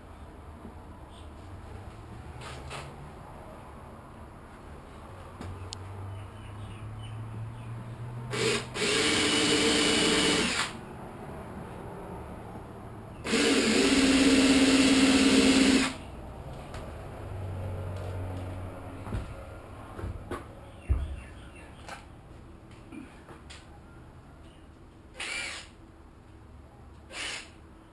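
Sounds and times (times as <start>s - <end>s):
cordless drill running: 8.3s - 10.8s, 13.2s - 16.0s, 25.2s - 25.7s, 27.1s - 27.5s.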